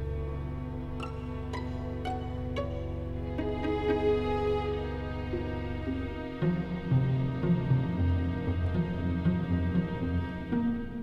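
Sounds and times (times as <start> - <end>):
symphony orchestra playing: 0.0 - 11.0.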